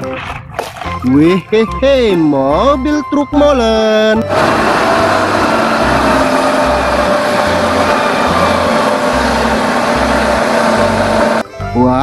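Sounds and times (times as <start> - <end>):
road traffic noise: 4.2 - 11.5
truck engine driving past: 4.2 - 11.5.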